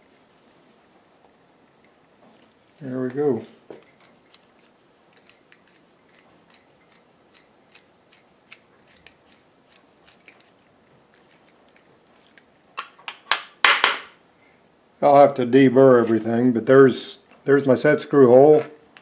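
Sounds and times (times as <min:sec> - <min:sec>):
metal clinks: 0:18.4 - 0:19.0.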